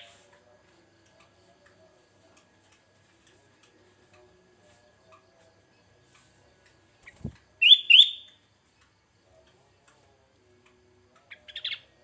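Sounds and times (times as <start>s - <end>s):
bird chirps: 7.0s - 8.4s, 11.2s - 12.0s
bird whistled notes: 7.6s - 8.3s.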